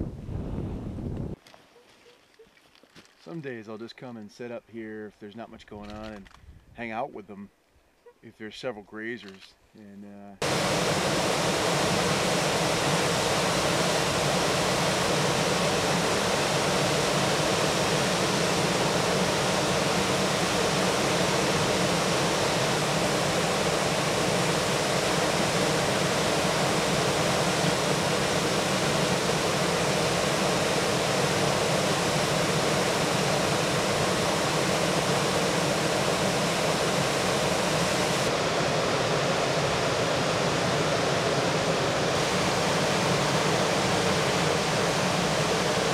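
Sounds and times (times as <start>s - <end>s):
whitewater rushing: 10.4s - 45.9s.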